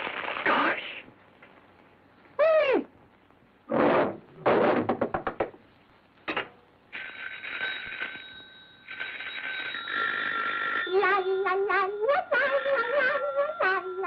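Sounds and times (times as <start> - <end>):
telephone bell ringing: 7.0 - 14.0.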